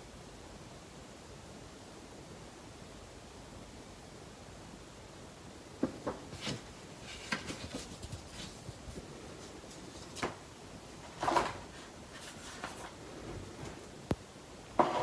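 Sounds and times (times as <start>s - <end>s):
paper and cardboard rustling: 5.9s - 14.0s.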